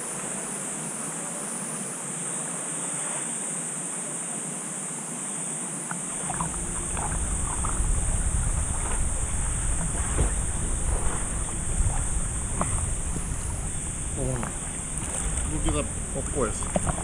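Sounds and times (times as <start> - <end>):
low water churning: 6.0 - 17.0
small splashes: 6.0 - 17.0
water sloshing and lapping: 6.0 - 17.0.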